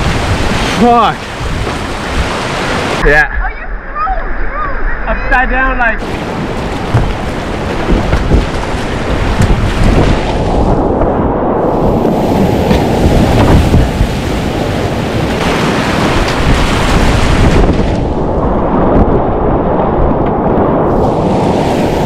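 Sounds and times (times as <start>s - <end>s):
wind buffeting microphone: 0.0s - 3.6s, 4.4s - 22.0s
whitewater rushing: 0.0s - 4.3s, 11.6s - 18.3s.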